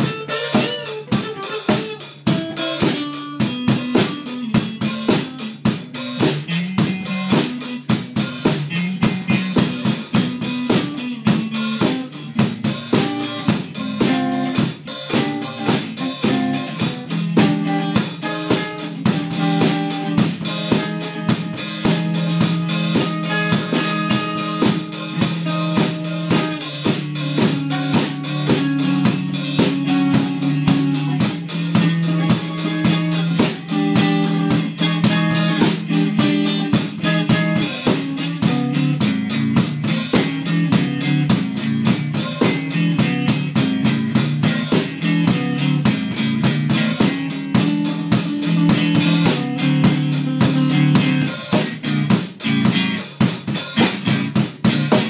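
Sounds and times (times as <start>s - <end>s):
drum kit beat: 0.0s - 55.0s
guitar playing held notes: 0.0s - 55.0s.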